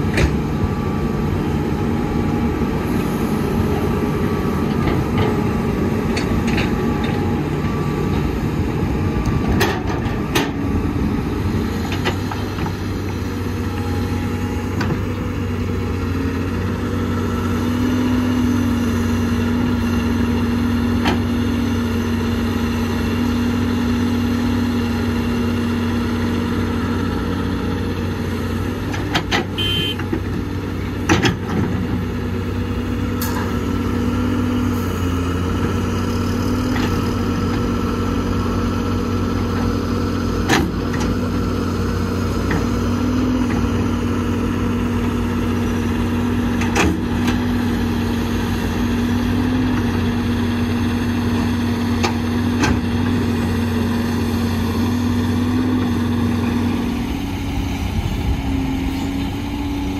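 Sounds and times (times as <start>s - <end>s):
diesel engine running: 0.0s - 59.9s.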